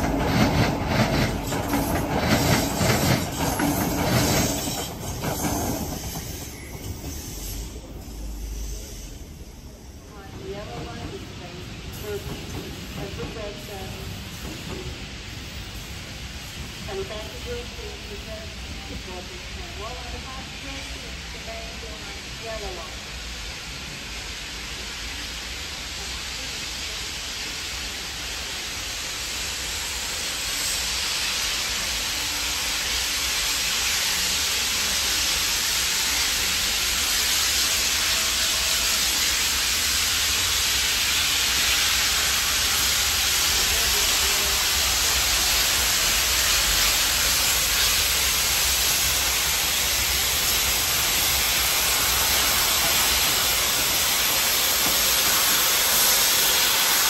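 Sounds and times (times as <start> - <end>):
steam locomotive hissing: 0.0 - 57.0.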